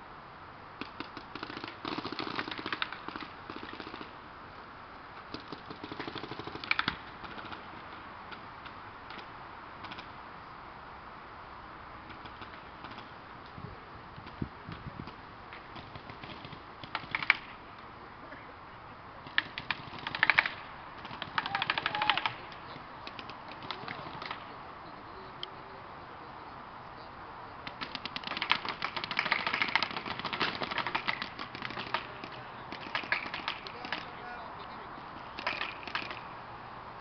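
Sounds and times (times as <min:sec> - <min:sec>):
paintball markers firing: 0:00.8 - 0:04.1, 0:05.3 - 0:10.1, 0:15.1 - 0:17.6, 0:19.2 - 0:24.5, 0:27.6 - 0:34.2, 0:35.3 - 0:36.3.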